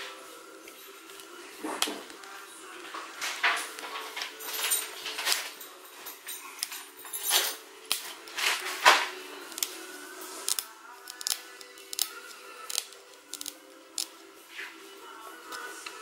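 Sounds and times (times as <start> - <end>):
tools scraping plastic bezel: 10.4 - 14.2.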